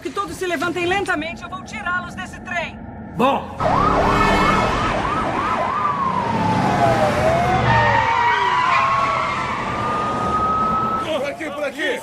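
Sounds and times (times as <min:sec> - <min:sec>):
car engines rumbling: 0:00.7 - 0:11.4
police sirens wailing: 0:03.5 - 0:12.0
siren yelp: 0:03.6 - 0:11.6.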